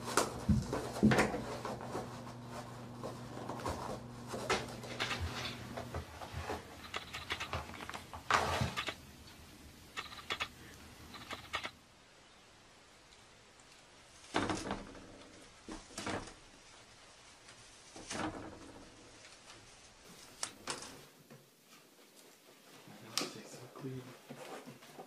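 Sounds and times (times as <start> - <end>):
rustling paper: 0.0 - 9.3, 13.6 - 23.0
steady low hum: 0.0 - 12.9.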